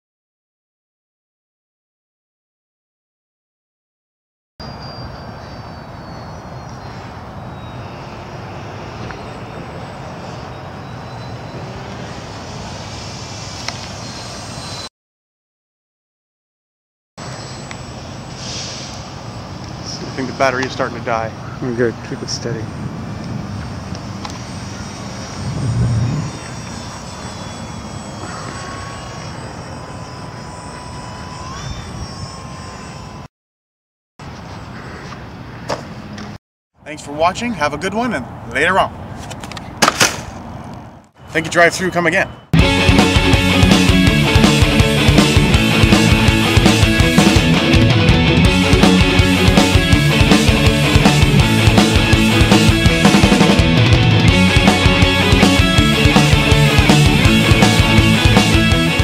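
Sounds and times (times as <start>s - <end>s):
steady rushing noise: 23.0s - 28.1s
model airplane motor whine: 24.2s - 33.3s.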